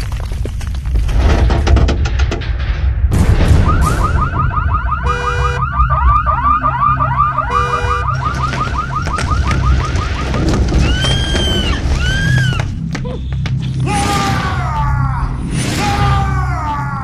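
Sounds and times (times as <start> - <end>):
car alarm chirping warble: 3.7 - 11.8
honk-like tone: 7.5 - 8.2
crash of something breaking: 8.1 - 12.4.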